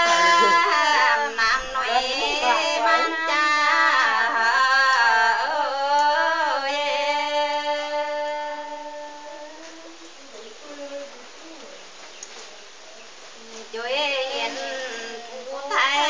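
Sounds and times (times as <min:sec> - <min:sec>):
woman singing folk melody: 0:00.0 - 0:11.2, 0:13.4 - 0:16.0.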